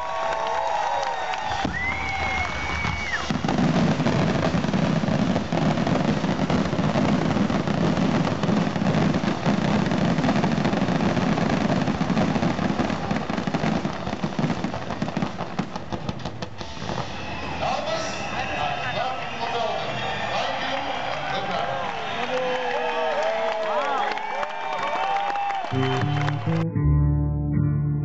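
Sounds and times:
fireworks bursting and crackling: 0.6 - 25.6
firework whistle: 1.3 - 15.2, 16.2 - 23.0.

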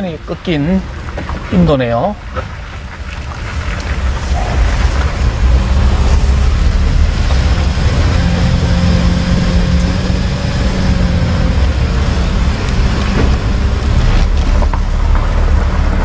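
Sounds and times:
rumbling road noise: 0.0 - 16.0
vehicle engine drone: 2.8 - 16.0.

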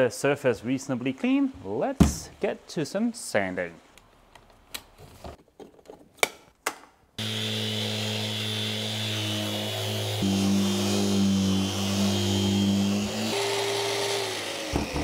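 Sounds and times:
orbital sander running: 7.2 - 15.0.

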